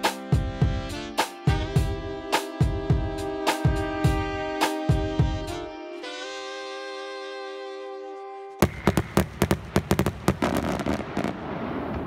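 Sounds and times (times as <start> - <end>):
held musical note: 0.0 - 8.7
fireworks popping and crackling: 8.6 - 12.0.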